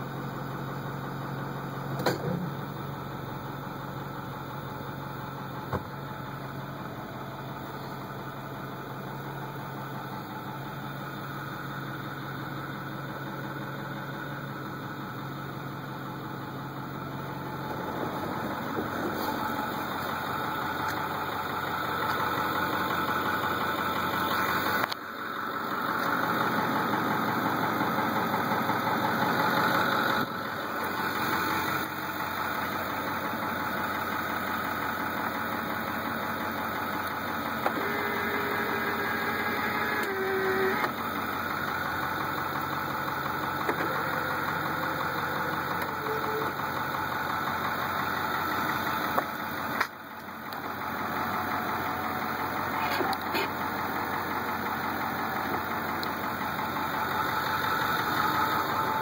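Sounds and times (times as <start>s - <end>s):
diesel engine idling: 0.0s - 59.0s
mirror motor whining: 37.6s - 41.0s.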